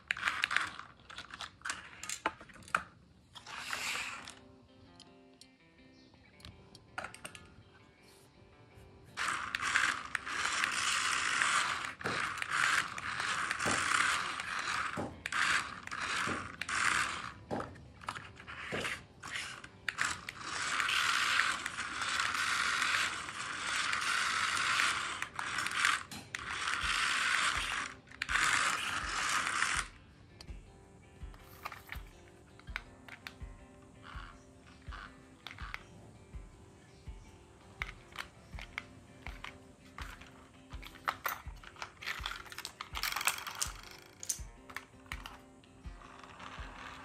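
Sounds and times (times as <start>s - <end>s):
toy electric motor and gearbox: 0.0s - 5.0s, 7.0s - 7.5s, 9.1s - 47.0s.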